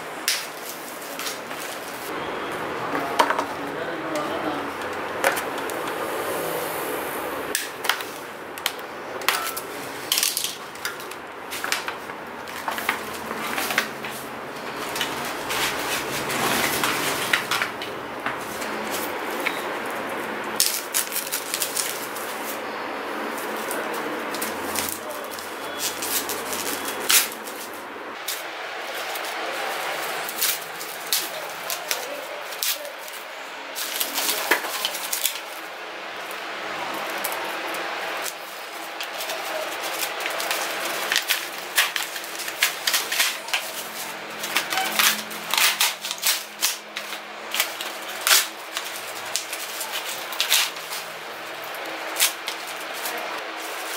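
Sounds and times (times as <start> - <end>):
plastic and paper crinkling tearing: 0.1 - 2.2, 7.6 - 53.9
parts clicking and rattling: 7.5 - 19.7.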